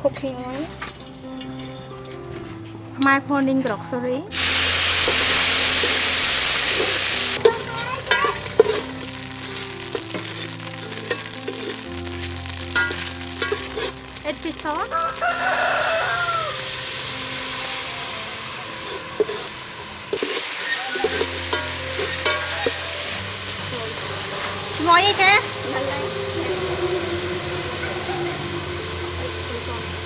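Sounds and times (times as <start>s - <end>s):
spice paste sizzling in oil: 4.3s - 30.0s
metal ladle stirring: 5.0s - 14.2s, 18.6s - 23.0s
rooster crowing: 14.8s - 16.8s, 20.6s - 21.4s, 25.6s - 29.5s
chickens calling: 14.8s - 16.9s, 19.5s - 23.1s, 24.9s - 29.2s.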